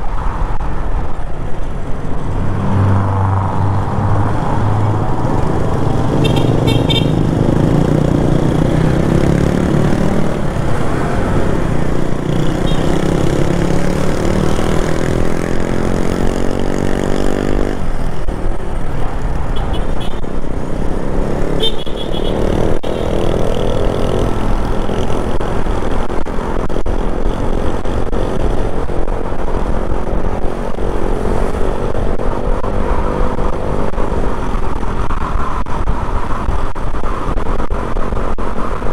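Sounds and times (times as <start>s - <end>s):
motorcycle engine accelerating: 2.1s - 18.5s.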